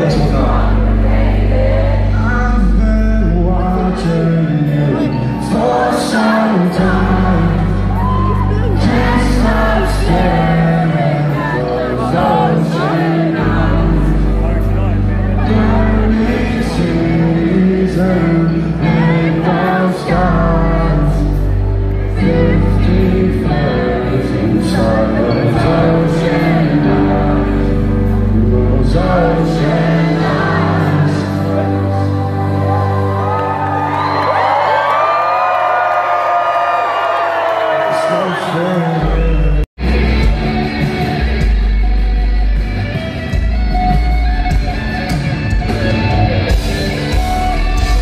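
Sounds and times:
person singing: 0.0s - 35.2s
live concert music over a pa: 0.0s - 48.0s
electric guitar: 39.8s - 48.0s
heavy bass line: 39.8s - 48.0s.

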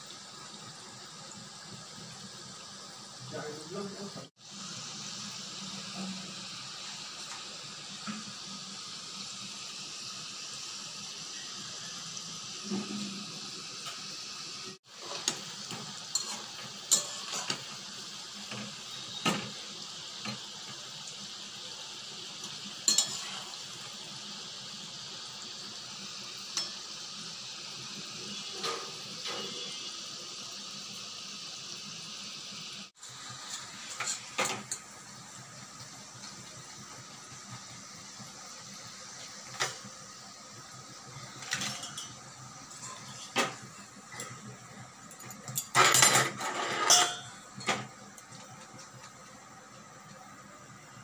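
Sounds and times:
food deep-frying in oil: 0.0s - 51.0s
metal utensils clinking on pan: 15.0s - 17.8s, 22.4s - 23.6s, 26.5s - 26.8s, 28.6s - 29.8s, 33.5s - 34.9s, 41.3s - 47.9s.

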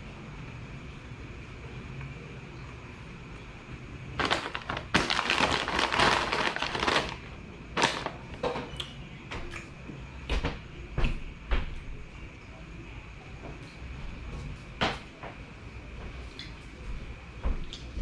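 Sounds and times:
plastic chip bag crinkling: 4.2s - 8.5s.

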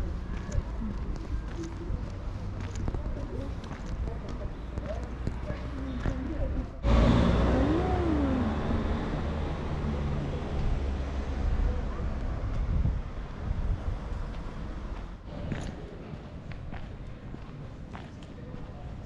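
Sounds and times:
passing vehicle rumble: 5.7s - 16.2s
engine tone rising and falling: 6.8s - 11.4s.

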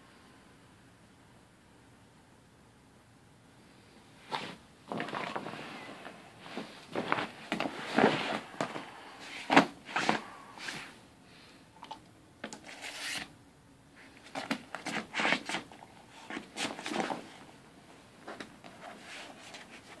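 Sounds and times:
blanket rustling: 4.2s - 10.9s.

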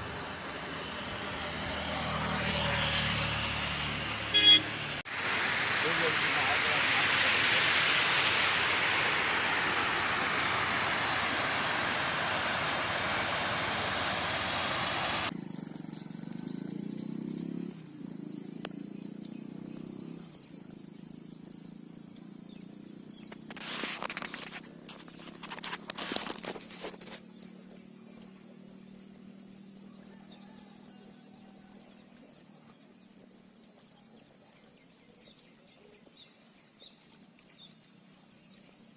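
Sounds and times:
loud even rushing noise: 4.8s - 15.3s.

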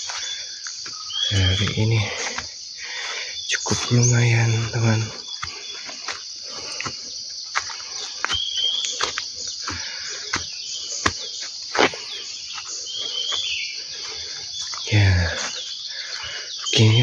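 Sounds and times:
bird chirping: 0.0s - 17.0s
footsteps on dry leaves: 0.0s - 17.0s
high-pitched insect chorus: 0.0s - 17.0s.

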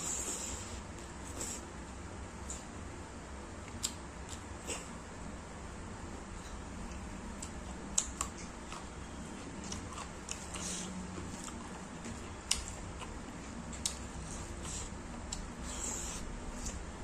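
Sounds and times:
steady low hum: 0.0s - 17.0s
person chewing: 3.7s - 5.0s, 6.4s - 16.9s.

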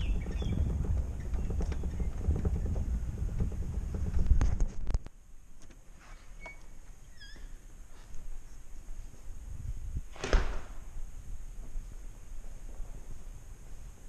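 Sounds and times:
wind buffeting microphone: 0.0s - 5.0s, 9.3s - 10.2s.

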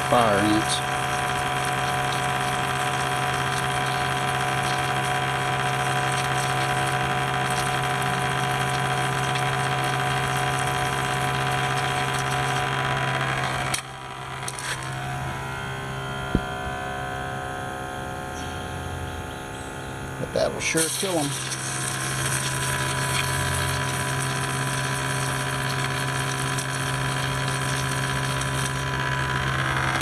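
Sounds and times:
water spraying: 0.0s - 12.9s, 20.6s - 29.0s
sprayer pump motor humming: 0.0s - 30.0s.

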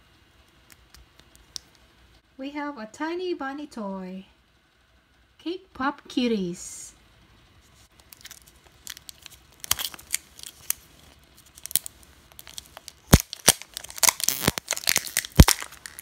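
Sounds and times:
plastic wrapper crinkling: 7.9s - 16.0s.

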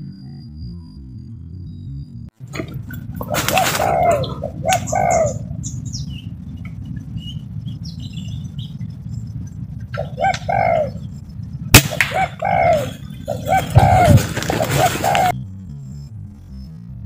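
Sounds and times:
steady low rumble: 0.0s - 17.0s
doves cooing: 2.4s - 15.4s
air rifle firing: 11.7s - 12.4s.

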